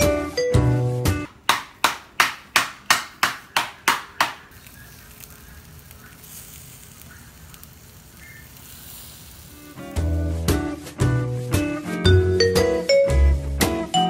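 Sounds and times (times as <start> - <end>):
food sizzling on a grill: 4.4 - 12.0.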